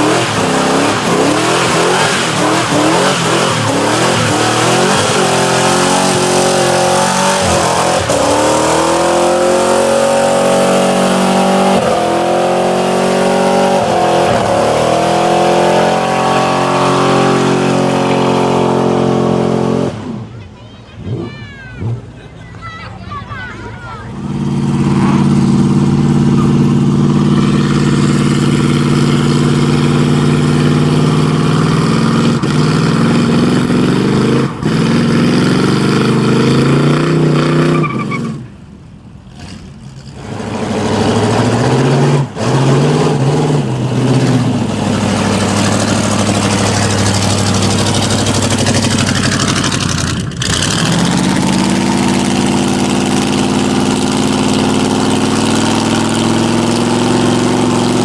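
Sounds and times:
car engine at high revs: 0.0 - 20.3, 24.0 - 58.0
spinning tyres: 23.8 - 38.6, 39.2 - 58.0.

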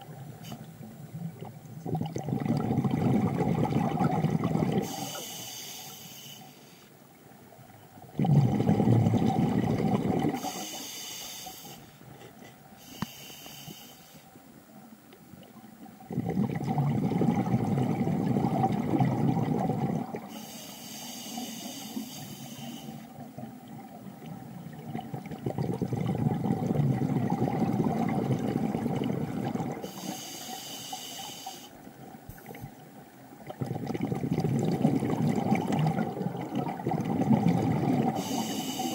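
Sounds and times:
exhaled air bubbling: 0.0 - 5.4, 7.4 - 11.2, 15.3 - 38.9
regulator inhale hiss: 4.8 - 7.0, 10.4 - 12.0, 12.8 - 14.4, 20.3 - 23.1, 29.8 - 32.7, 38.2 - 38.9.

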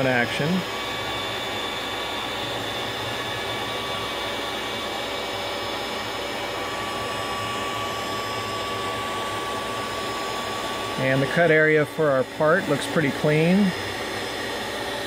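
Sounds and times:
router high steady tone: 0.0 - 15.0
vacuum cleaner running: 0.0 - 15.0.

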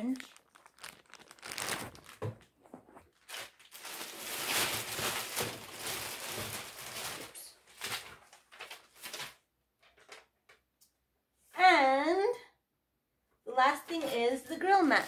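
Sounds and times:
plastic packaging crinkling: 0.0 - 10.3.

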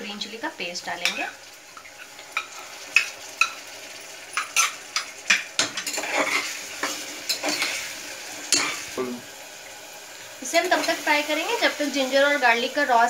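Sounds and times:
onions sizzling in hot oil: 0.0 - 13.0
metal spatula scraping pot: 4.4 - 8.9.

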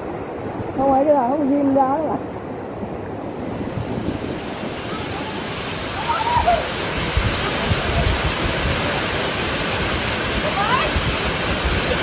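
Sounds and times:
waterfall rushing: 0.0 - 12.0
wind buffeting microphone: 2.8 - 12.0.

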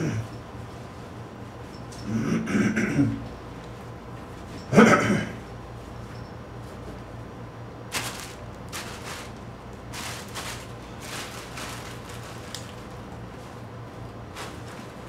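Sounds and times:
steady low hum: 0.0 - 15.0
cloth and bag rustling: 7.9 - 15.0.

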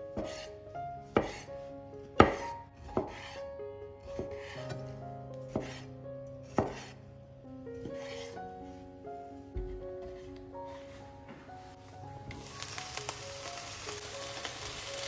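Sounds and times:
soft instrumental music: 0.0 - 15.0
knife cutting on cutting board: 0.2 - 0.5, 1.1 - 1.5, 2.2 - 3.4, 4.1 - 4.8, 5.5 - 5.9, 6.5 - 7.0, 7.8 - 8.4.

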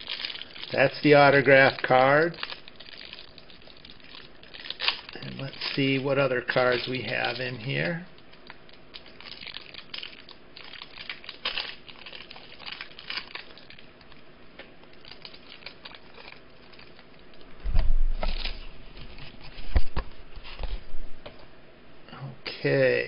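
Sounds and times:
dull thumps: 17.6 - 18.4.

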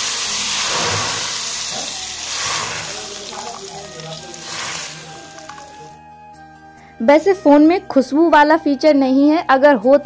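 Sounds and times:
hot ghee sizzling: 0.0 - 6.0
ladle turning dal: 0.0 - 6.0.

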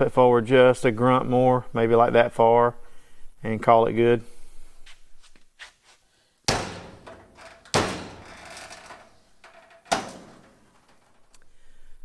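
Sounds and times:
knocks on ringing sheet metal: 6.5 - 8.6.

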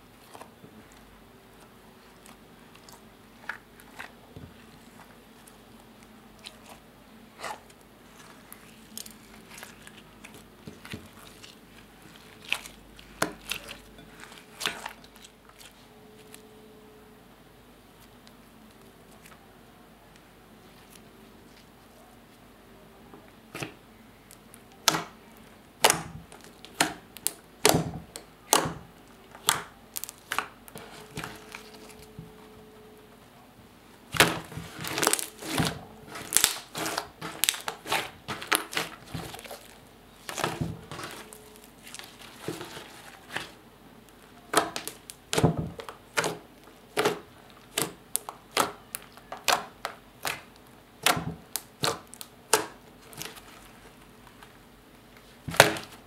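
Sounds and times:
slime popping and crackling: 25.8 - 32.1, 34.1 - 43.6, 44.5 - 53.6.

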